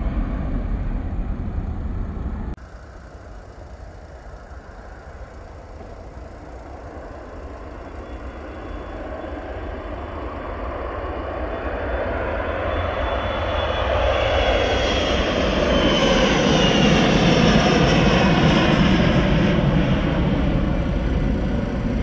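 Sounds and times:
distant jet engines on takeoff roll: 0.0s - 22.0s
jet engine rumble at takeoff: 0.0s - 22.0s.

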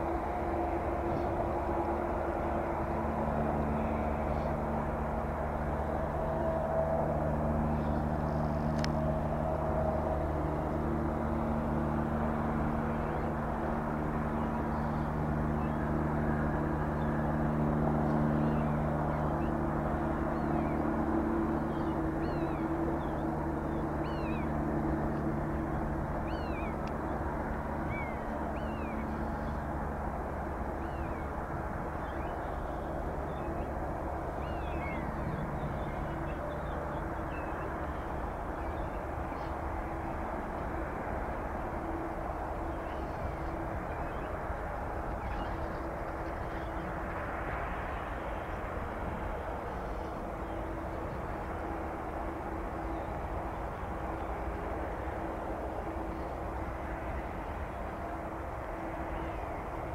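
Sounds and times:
jet engines humming: 0.0s - 59.9s
birds whistling: 21.6s - 24.5s, 26.2s - 26.8s.

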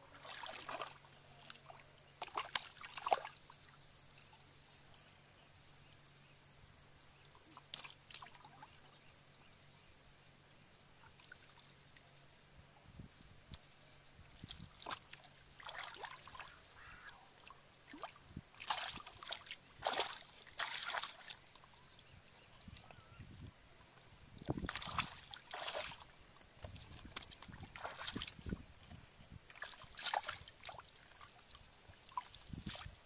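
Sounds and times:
hands splashing in muddy water: 0.1s - 3.4s, 14.4s - 16.6s, 17.4s - 21.4s, 24.4s - 28.6s, 29.5s - 31.5s, 32.1s - 33.0s.

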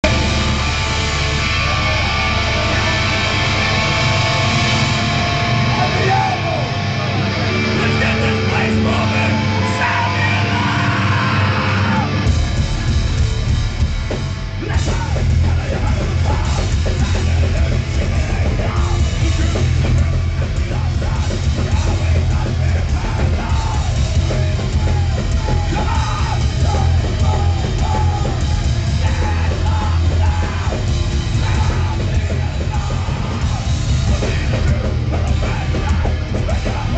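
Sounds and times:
electric guitar chords: 0.0s - 36.9s
punk band playing live: 0.0s - 36.9s
shouted vocals: 5.7s - 12.3s, 14.6s - 36.9s.

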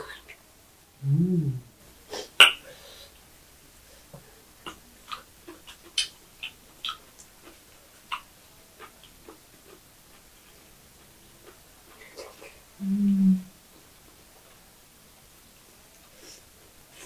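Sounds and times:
chewing mouth clicks and smacks: 4.6s - 12.6s.

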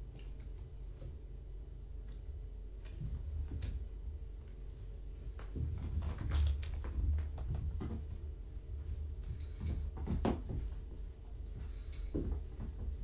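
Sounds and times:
steady low hum: 0.0s - 13.0s
kittens knocking and scuffling: 2.8s - 13.0s.

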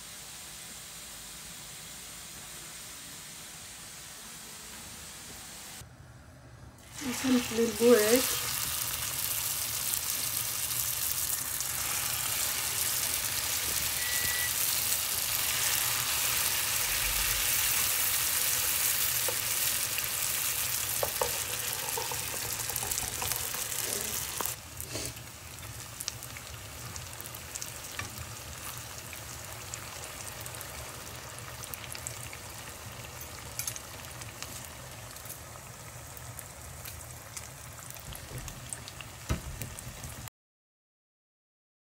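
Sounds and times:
pastry sizzling in hot oil: 6.8s - 40.3s.

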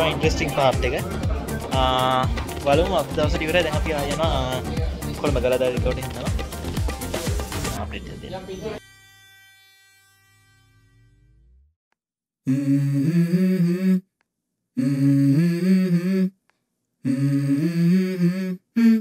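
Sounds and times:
wordless vocal phrases: 0.0s - 6.4s.

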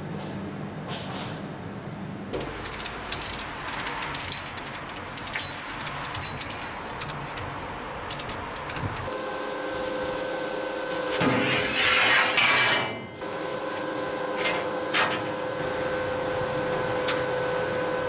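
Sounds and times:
steady hum: 0.0s - 18.0s
chain jangling: 2.4s - 7.5s
metallic ratchet clicks: 2.4s - 9.1s.

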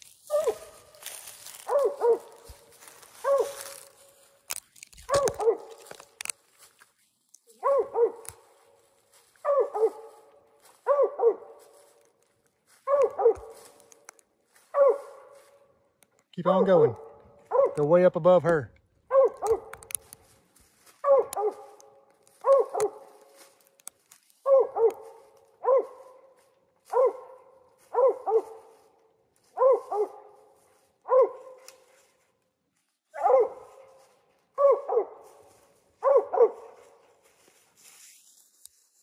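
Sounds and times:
dog barking: 0.3s - 4.0s, 5.1s - 6.0s, 7.5s - 12.0s, 12.8s - 13.9s, 14.6s - 15.7s, 16.9s - 17.8s, 19.1s - 19.9s, 20.8s - 23.4s, 24.4s - 31.9s, 33.1s - 37.1s.

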